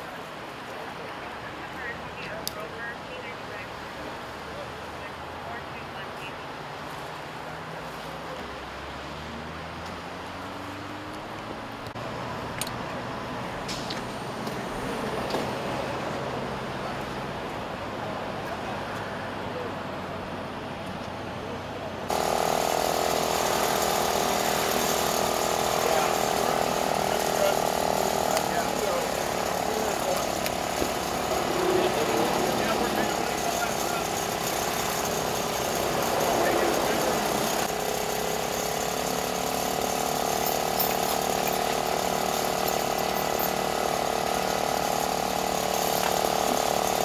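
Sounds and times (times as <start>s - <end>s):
hydraulic power unit running: 21.8s - 47.0s
machinery rattling: 22.1s - 47.0s.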